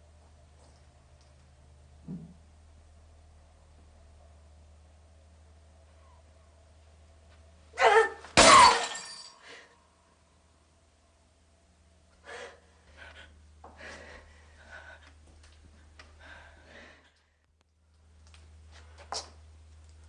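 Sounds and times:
glass smashing on floor: 0:08.4 - 0:09.4.

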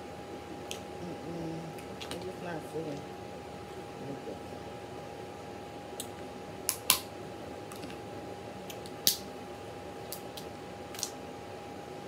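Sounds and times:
faint steady hum: 0:00.0 - 0:12.0
crab shell cracking: 0:10.1 - 0:11.2.

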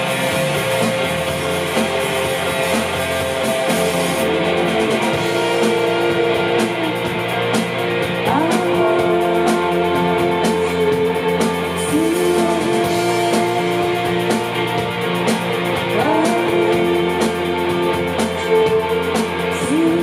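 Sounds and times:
bass guitar: 0:00.0 - 0:20.0
drum kit beat on cymbals: 0:00.0 - 0:20.0
electric guitars sustained notes: 0:00.0 - 0:20.0.

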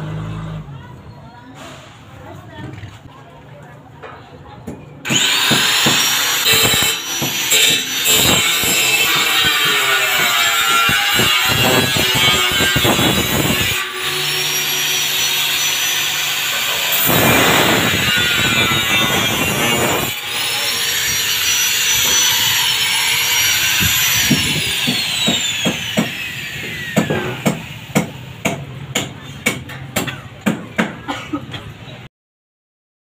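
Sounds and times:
angle grinder cutting steel: 0:05.0 - 0:28.4.

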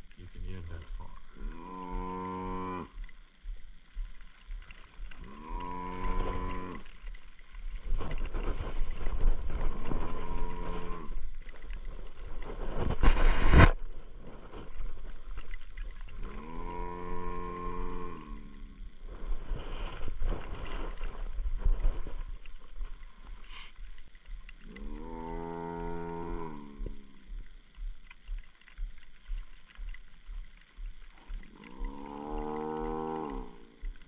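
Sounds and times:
buffalo bellowing: 0:01.1 - 0:03.1, 0:05.1 - 0:06.9, 0:09.9 - 0:11.2, 0:16.2 - 0:18.8, 0:24.6 - 0:27.2, 0:31.4 - 0:34.0
rush of noise on microphone: 0:05.0 - 0:14.8.

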